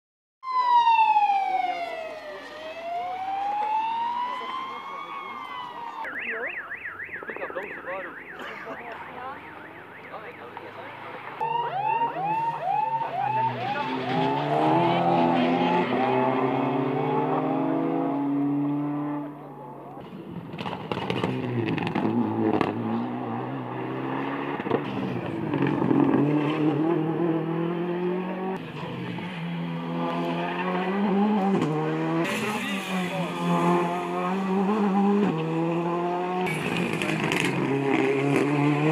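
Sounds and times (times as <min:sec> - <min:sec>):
rally car engines revving: 0:01.8 - 0:38.9
rising and falling wail: 0:11.4 - 0:18.0.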